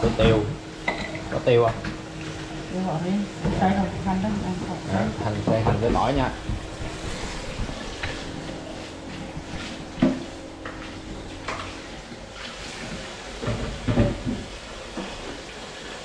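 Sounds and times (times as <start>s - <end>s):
dishes knocking and clinking: 0.8s - 2.0s, 13.4s - 14.5s
tap water running into sink: 3.4s - 8.6s, 9.2s - 16.0s.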